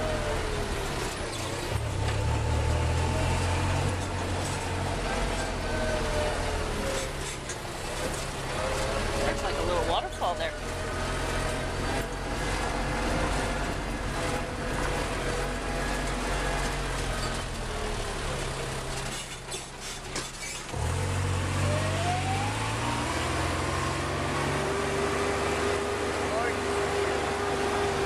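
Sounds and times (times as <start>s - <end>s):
golf cart humming: 0.0s - 28.0s
rising whine: 20.9s - 28.0s.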